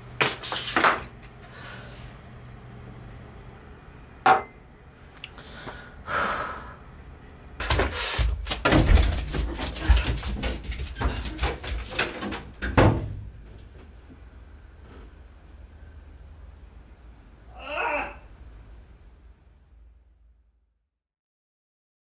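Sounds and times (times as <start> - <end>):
footsteps: 7.6 - 12.4
door thumping shut: 8.6 - 13.4.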